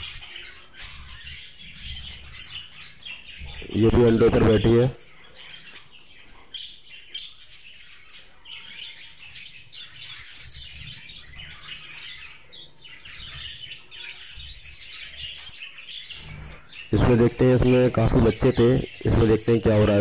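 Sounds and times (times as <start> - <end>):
budgerigars chirping: 0.0 - 20.0.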